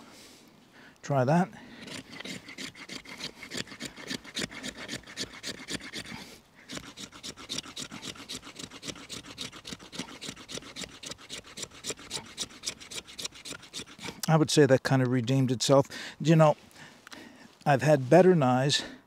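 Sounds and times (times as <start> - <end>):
knife spine scraping wood: 1.8 - 14.3.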